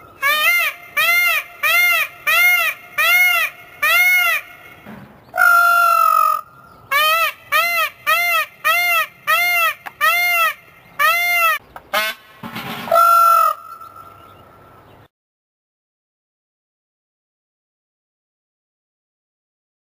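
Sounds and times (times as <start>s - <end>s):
peacock honking calls: 0.0s - 14.4s.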